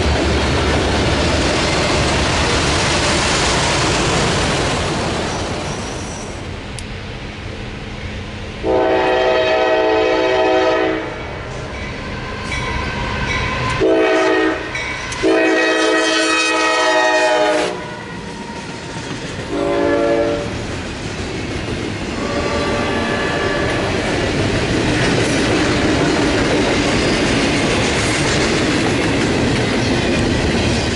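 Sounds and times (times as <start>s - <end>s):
clickety-clack of rail cars: 0.0s - 7.0s, 11.4s - 30.9s
train wheels on rail: 0.0s - 30.9s
locomotive air horn blasts: 8.6s - 11.2s, 13.7s - 18.2s, 19.5s - 20.5s, 22.2s - 23.8s.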